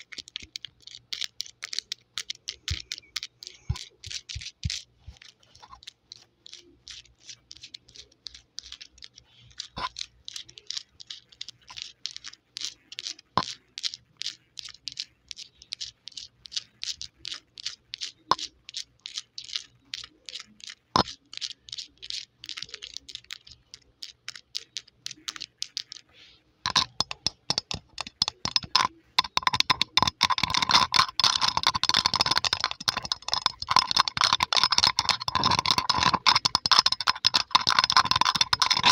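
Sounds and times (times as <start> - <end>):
fingernails tapping on microphone: 26.7 - 38.9.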